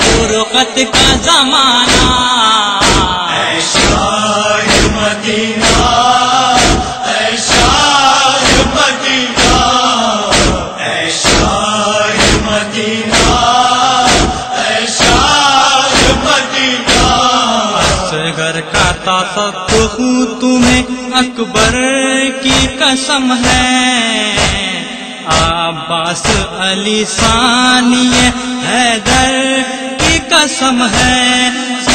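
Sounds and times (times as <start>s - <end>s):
men chanting a lament: 0.0s - 31.9s
chest-beating strokes: 2.8s - 18.1s.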